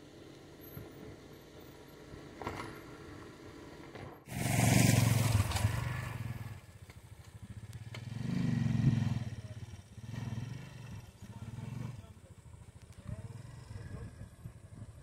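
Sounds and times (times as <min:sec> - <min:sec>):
small motorcycle engine revving: 0:04.3 - 0:15.0.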